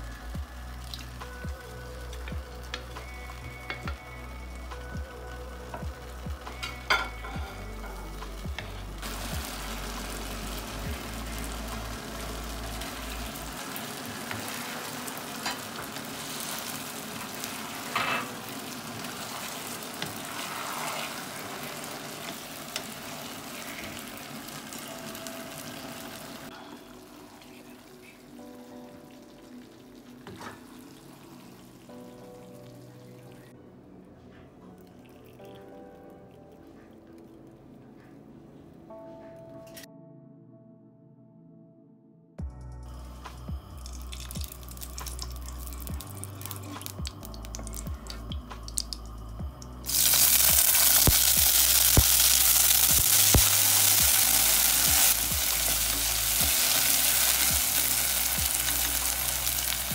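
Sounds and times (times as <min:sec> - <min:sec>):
sauce sizzling and bubbling in a pan: 0:00.0 - 0:32.3, 0:43.7 - 0:49.1, 0:49.8 - 0:59.9
spatula stirring food: 0:14.2 - 0:24.2.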